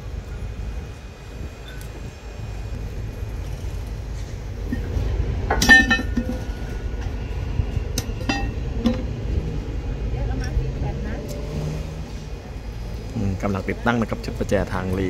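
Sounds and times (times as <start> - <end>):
steady low rumble: 0.0 - 15.0
loud ringing metal clank: 4.7 - 7.2, 7.9 - 9.2
light metal clinks: 5.5 - 6.6, 8.0 - 9.0.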